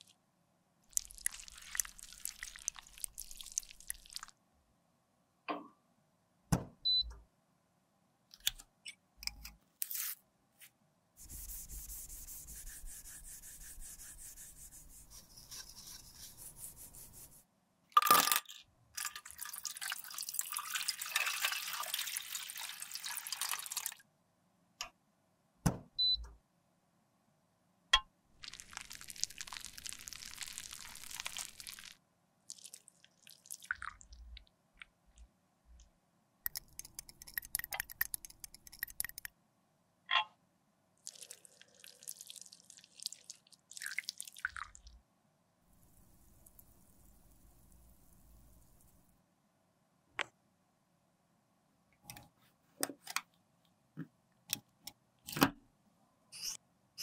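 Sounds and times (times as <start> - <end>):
liquid pouring into metal tray: 19.0 - 24.0.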